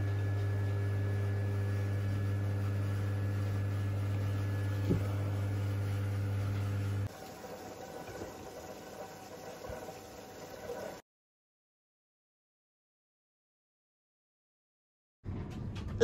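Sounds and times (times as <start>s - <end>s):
electrical appliance hum: 0.0s - 11.0s.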